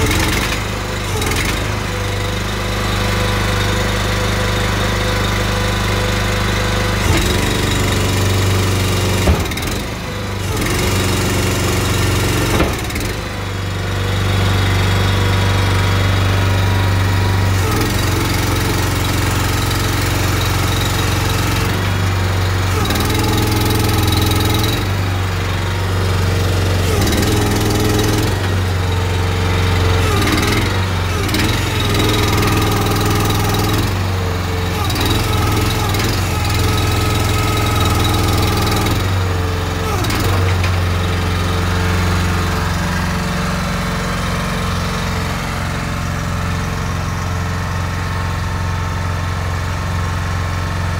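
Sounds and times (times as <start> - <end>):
small petrol engine running: 0.0 - 50.9
short metallic knocks: 7.1 - 10.1, 12.3 - 13.3.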